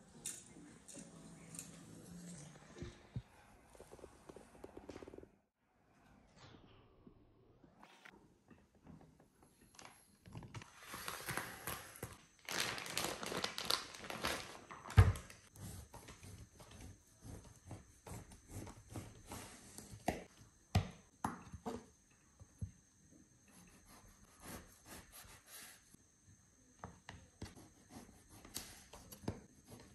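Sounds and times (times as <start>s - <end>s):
plastic wrapping crinkling: 10.6s - 15.4s.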